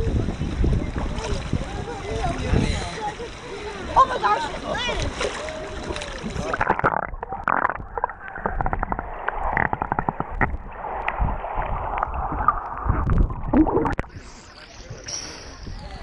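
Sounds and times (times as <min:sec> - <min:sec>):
water gurgling underwater: 0:05.8 - 0:14.5.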